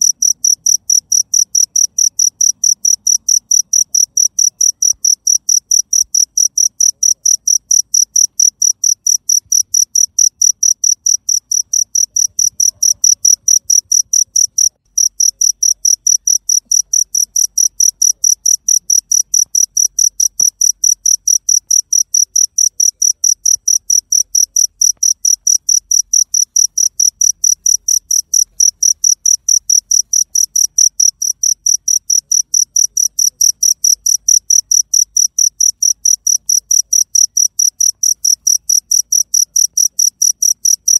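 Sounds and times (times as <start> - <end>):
cricket chirping: 0.0 - 40.9.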